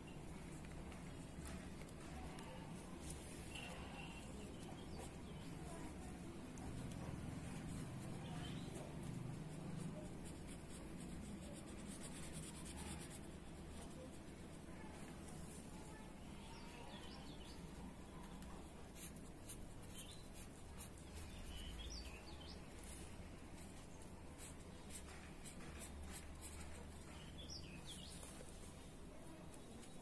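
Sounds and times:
scratchy paper rustling: 0.1 - 30.0
faint bird chirps: 19.8 - 22.7.

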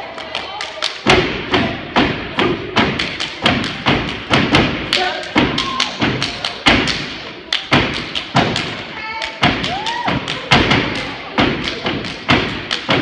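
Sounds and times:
foot stomps: 1.0 - 13.0
hand claps: 2.8 - 13.0.

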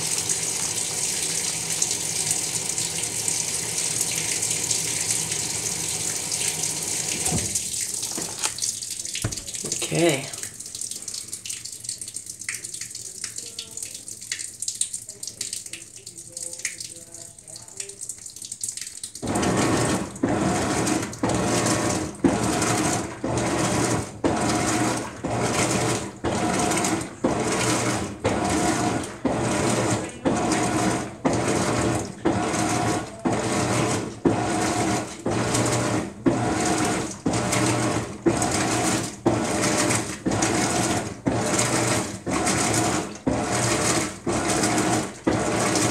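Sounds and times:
washing machine agitating: 0.0 - 45.9
faint water drips: 7.5 - 19.3.

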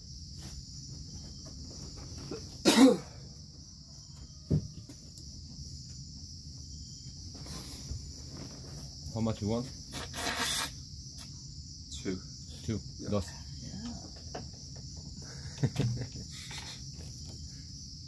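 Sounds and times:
insects droning: 0.0 - 18.0
person coughing: 2.6 - 3.2.

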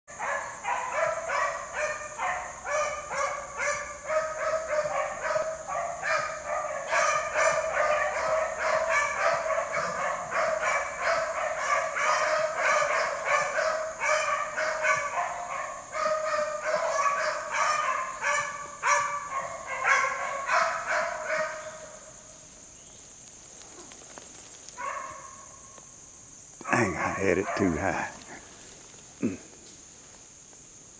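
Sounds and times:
pack of dogs baying and barking: 0.1 - 22.1, 26.6 - 28.5.

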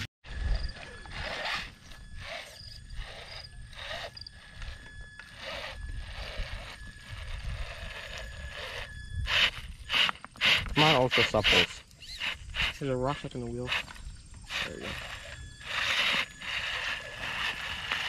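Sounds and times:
toy truck motor whine: 0.0 - 18.0
tires grinding on stones: 14.4 - 18.0.

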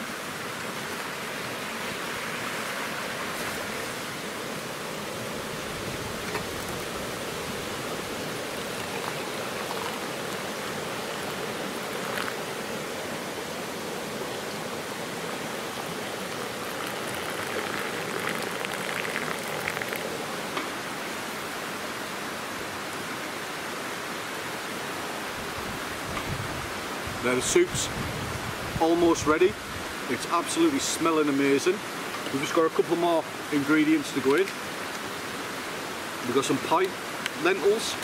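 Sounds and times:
stream rushing: 0.0 - 38.0
water pouring into mugs: 8.1 - 12.4, 15.8 - 20.5.

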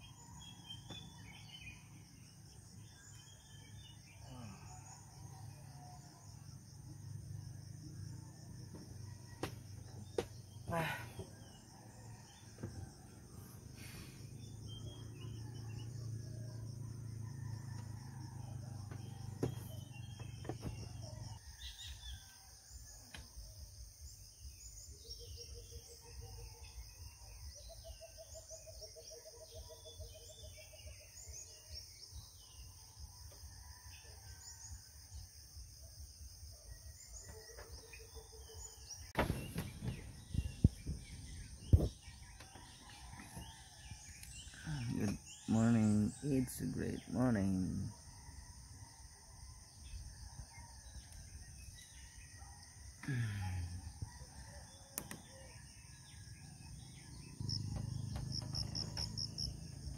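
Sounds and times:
high-pitched insect chorus: 0.0 - 59.9
birds chirping and calling: 55.0 - 59.9.

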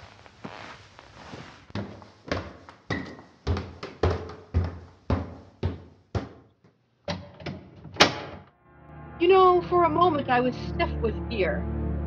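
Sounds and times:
thudding footsteps: 0.4 - 6.5.

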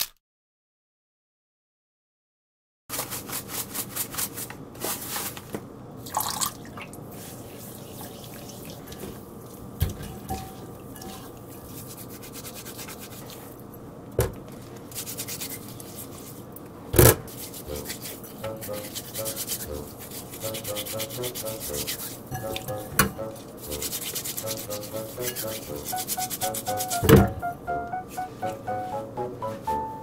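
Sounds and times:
hands rubbing lemon in water: 7.1 - 9.6, 10.3 - 13.6, 14.8 - 16.5, 17.3 - 27.0.

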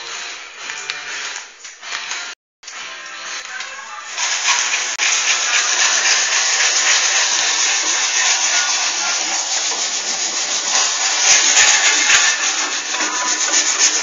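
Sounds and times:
sandpaper rubbing over filler: 4.0 - 14.0.

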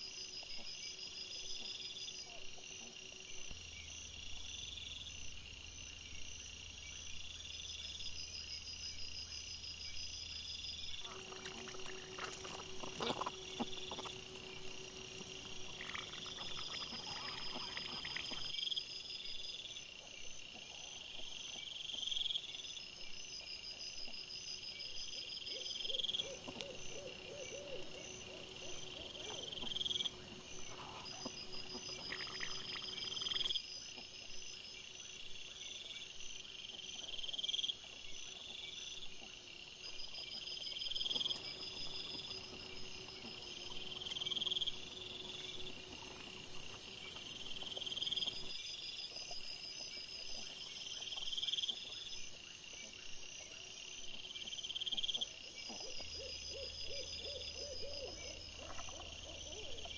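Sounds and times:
insects chirping: 0.0 - 59.9.

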